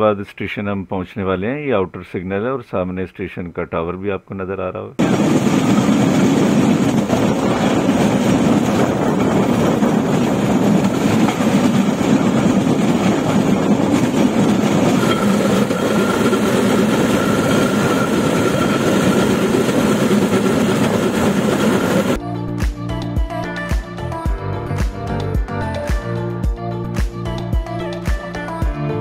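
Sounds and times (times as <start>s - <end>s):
motor trolley running on rails: 5.0s - 22.2s
thin high whine: 14.9s - 22.2s.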